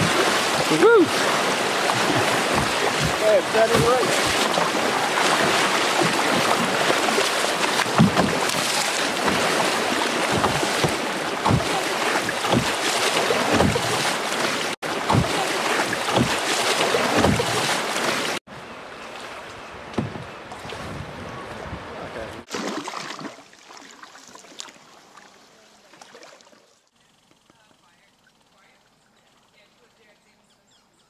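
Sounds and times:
whitewater rushing and splashing: 0:00.0 - 0:18.4
low thumps: 0:10.2 - 0:11.7
wind noise on microphone: 0:20.1 - 0:22.4.

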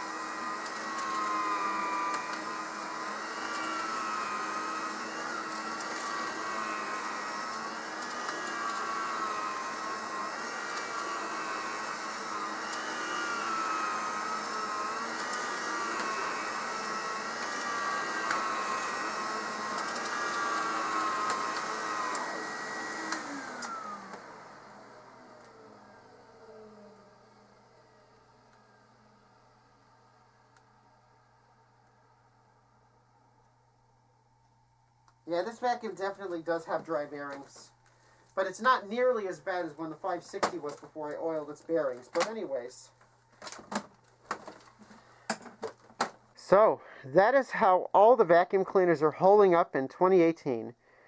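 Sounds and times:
vacuum cleaner motor whine: 0:00.0 - 0:33.3.

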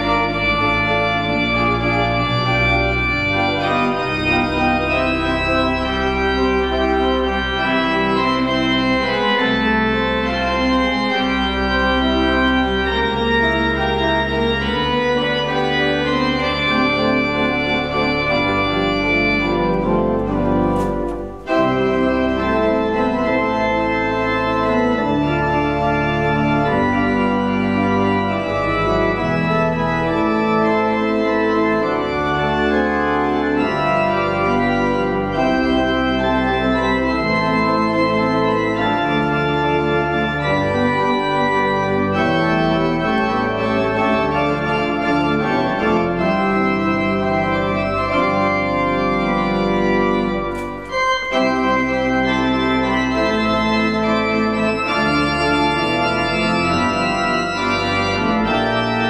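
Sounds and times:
organ playing slow chords: 0:00.0 - 0:59.0
click: 0:19.6 - 0:21.6, 0:50.5 - 0:51.3.

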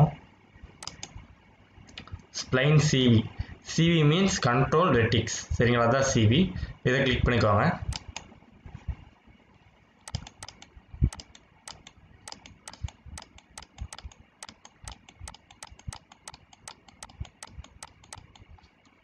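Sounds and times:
mouse button clicking: 0:00.8 - 0:01.2, 0:10.1 - 0:18.5.

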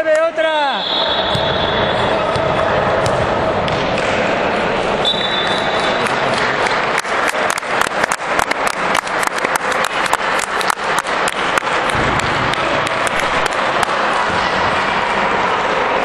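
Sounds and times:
hall background noise: 0:00.0 - 0:16.0
spectators clapping: 0:05.4 - 0:15.4.

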